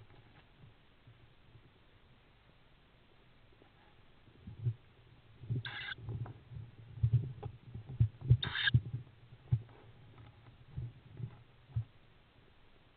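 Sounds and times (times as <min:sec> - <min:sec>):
owl chicks hissing calls: 0:05.6 - 0:06.0, 0:08.4 - 0:08.7.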